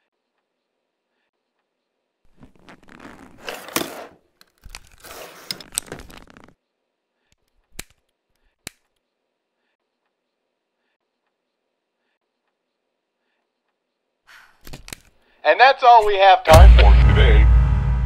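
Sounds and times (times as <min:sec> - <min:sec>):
papers rustling in drawer: 0:02.4 - 0:06.5.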